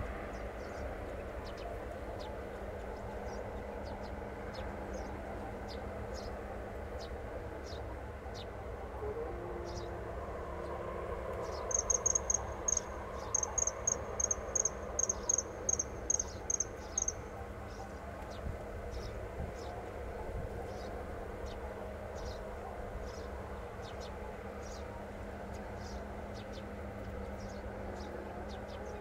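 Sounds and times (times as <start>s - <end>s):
low background noise: 0.0s - 29.0s.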